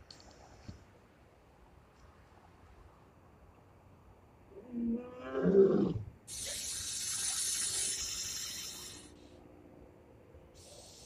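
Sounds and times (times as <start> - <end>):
lion roaring: 4.5 - 6.1
harsh high hissing: 6.3 - 9.4, 10.6 - 11.0.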